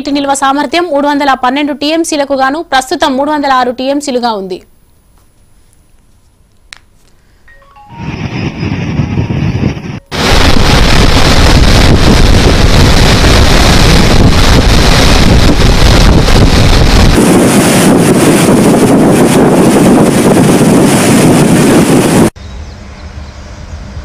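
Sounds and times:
wind buffeting microphone: 7.9 - 22.4.

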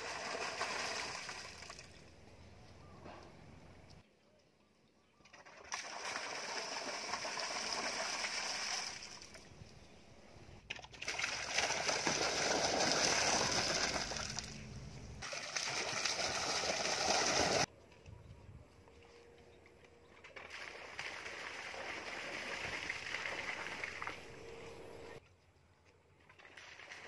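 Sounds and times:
water pouring into pool: 0.0 - 2.0, 5.3 - 9.4, 10.9 - 14.6, 15.2 - 17.7, 20.4 - 24.4, 26.4 - 27.0.

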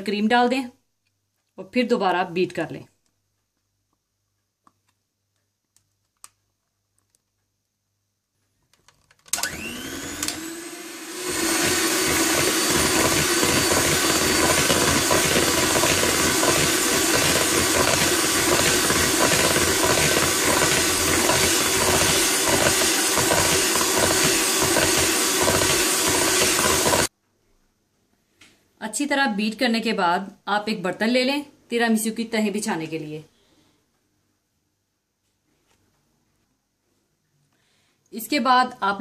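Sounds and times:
electric hand mixer whirring: 9.3 - 27.1.

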